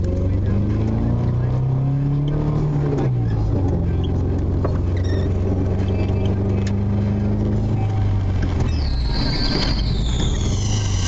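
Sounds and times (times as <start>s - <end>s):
vehicle engine drone: 0.0s - 11.0s.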